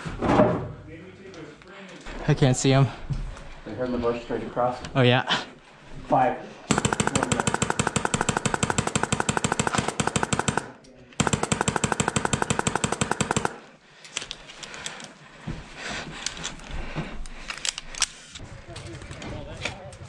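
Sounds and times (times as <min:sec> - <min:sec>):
airsoft rifle firing full-auto: 0:06.7 - 0:13.7.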